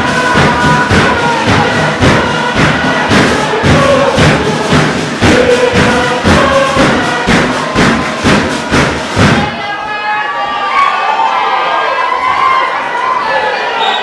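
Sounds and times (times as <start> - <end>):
hand-struck percussion pounding: 0.0 - 9.6
choir singing chant-like lines: 0.0 - 9.9.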